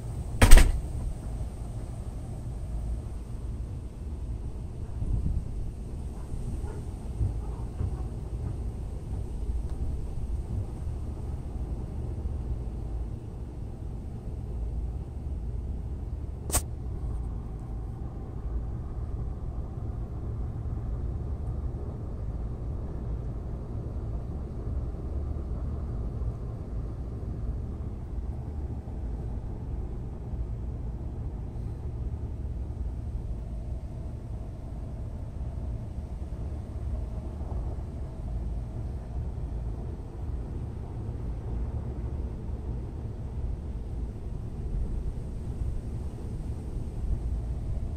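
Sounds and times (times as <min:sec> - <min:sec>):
steady low rumble: 0:00.0 - 0:47.9
sharp click: 0:00.4 - 0:00.8, 0:16.5 - 0:16.7.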